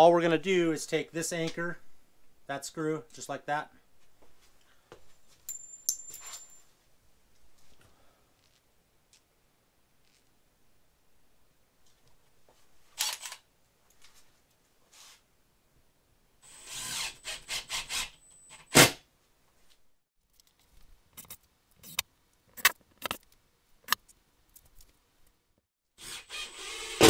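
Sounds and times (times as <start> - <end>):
screw gun motor whining: 16.5 - 18.6, 26.0 - 27.0.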